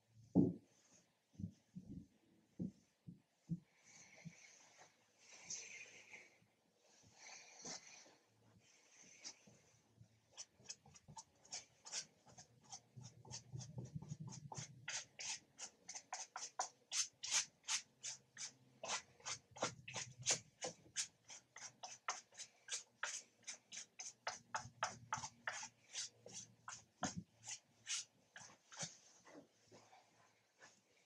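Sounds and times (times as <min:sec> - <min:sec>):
paintbrush scratching on canvas: 0:10.3 - 0:29.4.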